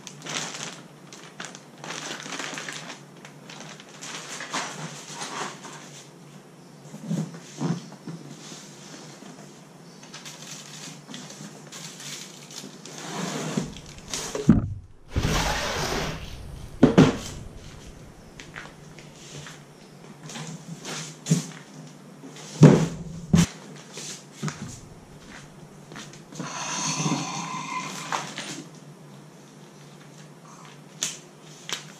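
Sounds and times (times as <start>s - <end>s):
plastic wrap crinkling: 0.0s - 5.2s, 10.2s - 12.8s, 13.6s - 19.6s, 24.4s - 26.3s
cardboard box scraping and rustling: 13.0s - 19.0s
lawnmower knocking on concrete: 13.7s - 18.7s.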